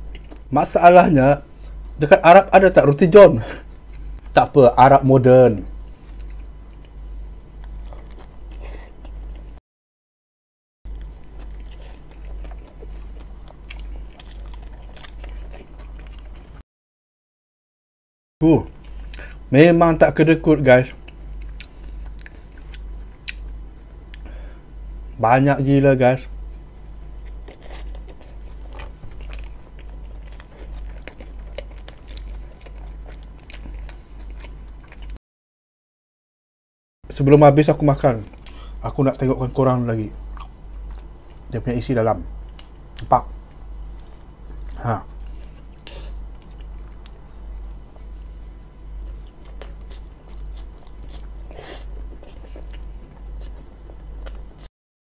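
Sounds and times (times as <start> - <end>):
mouth chewing food: 0.0 - 0.5, 5.9 - 9.6, 10.9 - 16.6, 20.9 - 24.3, 26.5 - 35.2, 40.2 - 41.5, 42.4 - 54.7
low steady hum: 0.0 - 9.6, 10.9 - 16.6, 18.4 - 35.2, 37.1 - 54.7
low hum: 37.1 - 54.7.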